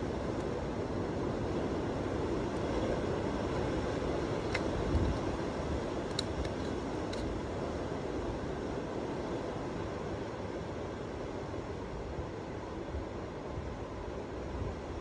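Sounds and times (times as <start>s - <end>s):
wind roaring: 0.0s - 7.6s.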